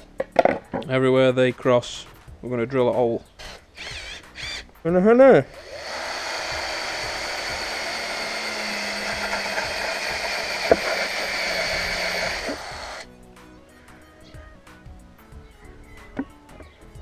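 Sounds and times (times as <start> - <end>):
cordless drill whirring: 3.4 - 4.7, 5.6 - 13.1.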